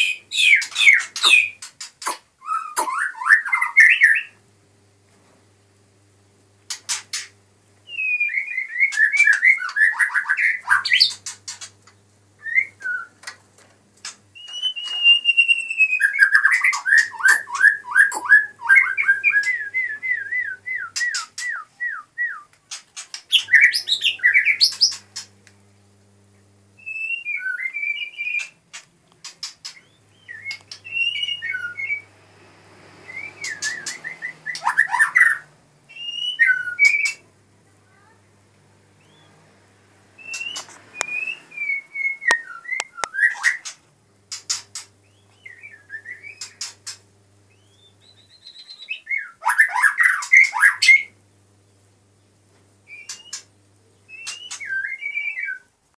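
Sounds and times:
bird singing whistled notes: 0.0 - 1.6, 7.8 - 11.2, 14.4 - 22.5, 26.8 - 28.6, 29.8 - 32.1, 33.0 - 37.2, 39.0 - 39.4, 40.2 - 43.7, 45.0 - 46.7, 47.5 - 51.2, 52.9 - 55.7
sharp bird clicks: 40.2 - 41.2.

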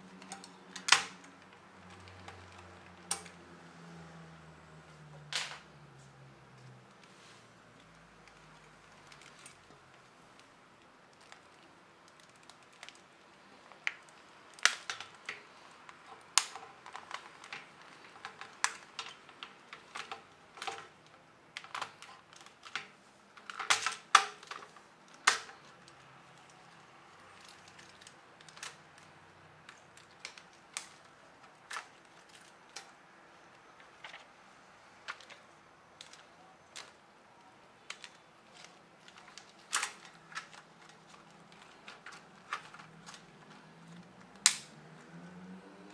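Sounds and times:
plastic clicks and snaps: 7.8 - 33.0, 35.0 - 37.0, 37.7 - 45.1.

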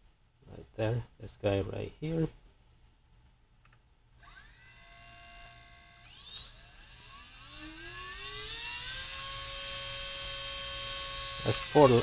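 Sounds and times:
electric motor whine rising in pitch: 4.2 - 12.0.

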